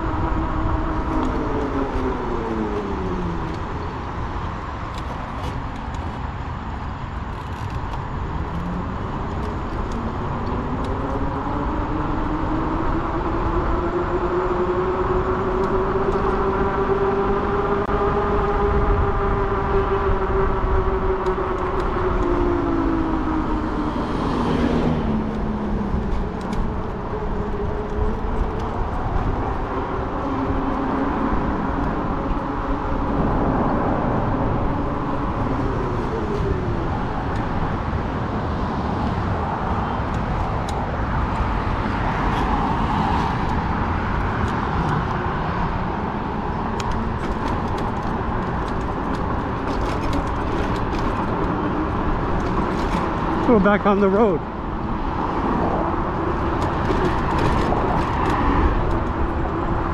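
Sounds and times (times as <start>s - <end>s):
wind rumbling on microphone: 0.0s - 59.9s
tyre noise: 18.7s - 59.9s.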